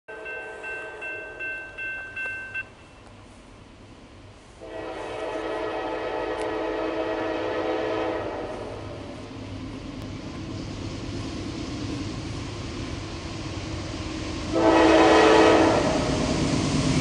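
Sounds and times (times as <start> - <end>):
railroad crossing bell dinging: 0.1 - 3.2
locomotive air horn: 4.6 - 8.8, 14.5 - 16.1.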